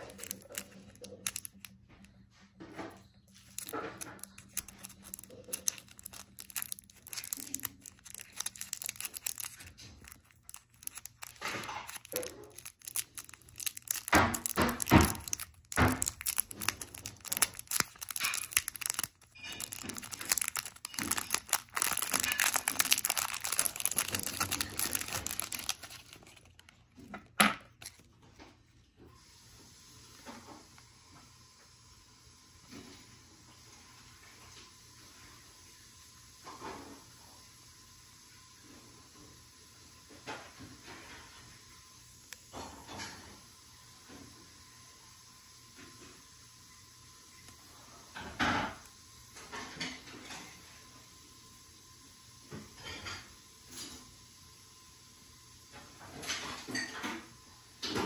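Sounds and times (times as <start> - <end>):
crinkling and tearing handling noises: 0.0 - 2.2, 3.0 - 28.7.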